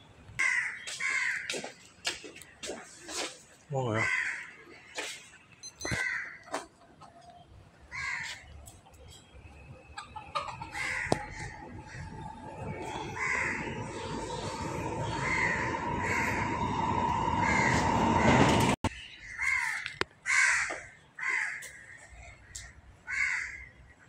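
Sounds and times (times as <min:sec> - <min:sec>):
bird calling: 0:09.9 - 0:20.0
steady drone: 0:10.8 - 0:18.9.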